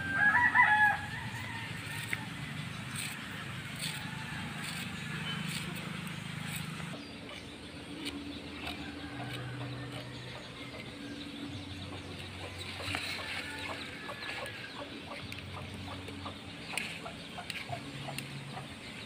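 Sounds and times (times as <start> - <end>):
garlic being peeled: 1.8 - 10.1
chickens clucking: 2.9 - 19.0.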